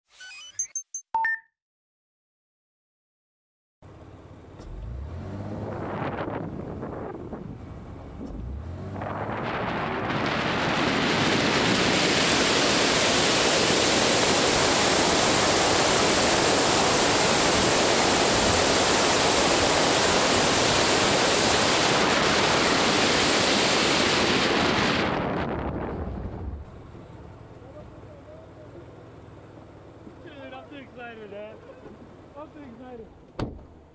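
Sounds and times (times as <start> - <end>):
wind rushing over microphone: 5.6 - 26.9.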